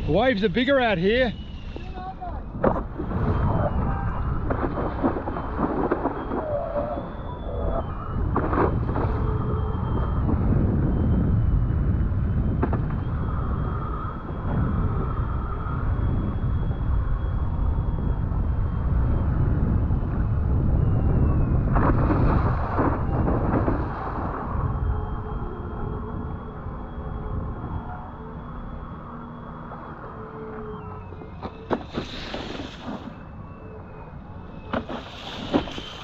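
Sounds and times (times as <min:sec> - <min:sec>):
wind buffeting microphone: 0:00.0 - 0:36.0
faint high whistle: 0:01.0 - 0:02.5, 0:06.1 - 0:08.3, 0:24.8 - 0:36.0
water splashing: 0:34.7 - 0:36.0.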